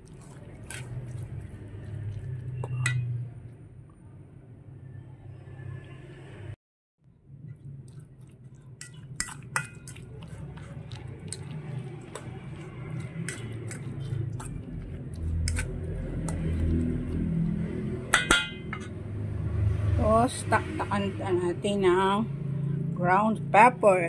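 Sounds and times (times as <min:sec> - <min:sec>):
fork scraping metal bowl: 0:07.9 - 0:16.8.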